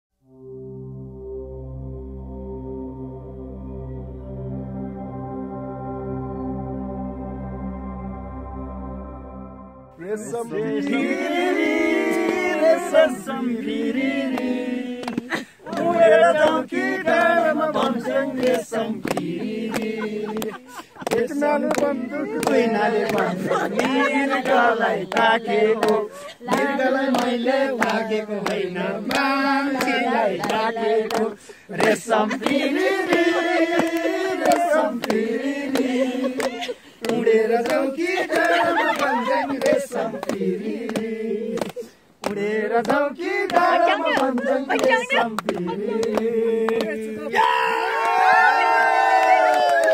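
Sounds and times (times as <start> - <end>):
soft ambient music: 0.2 - 10.0
men singing without instruments: 10.0 - 47.4
sharp hand claps: 14.3 - 47.0, 49.2 - 49.9.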